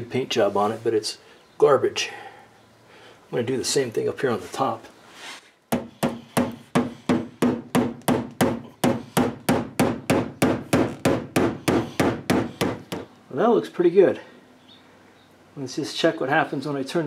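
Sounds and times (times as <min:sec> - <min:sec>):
hammer pounding sheet metal: 0:05.7 - 0:13.0.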